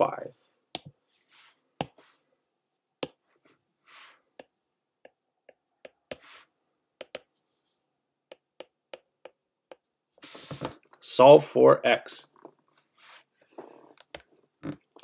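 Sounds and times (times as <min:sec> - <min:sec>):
soft hissing: 0:10.2 - 0:10.8.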